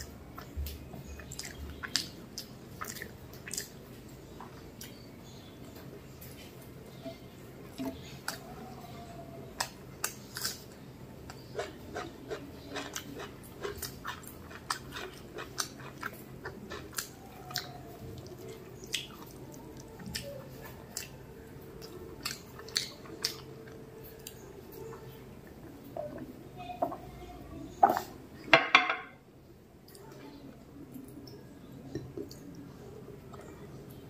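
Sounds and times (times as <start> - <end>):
wet chewing and mouth clicks: 0.0 - 4.0, 9.6 - 25.6.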